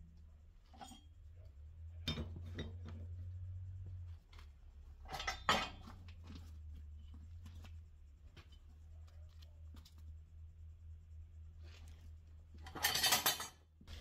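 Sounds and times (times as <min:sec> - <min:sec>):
low hum: 0:00.0 - 0:12.8
metal clinks and knocks: 0:04.9 - 0:09.0, 0:12.5 - 0:13.7.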